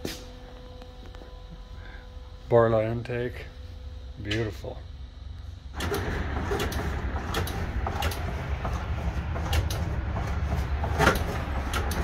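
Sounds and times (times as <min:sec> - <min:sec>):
truck engine low rumble: 0:00.1 - 0:12.0
sharp clicks and rattles: 0:05.8 - 0:08.8.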